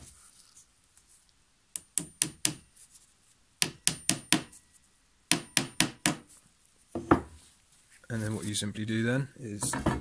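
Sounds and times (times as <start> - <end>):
hammer striking nail into wood: 1.8 - 2.6, 3.6 - 4.5, 5.3 - 6.2.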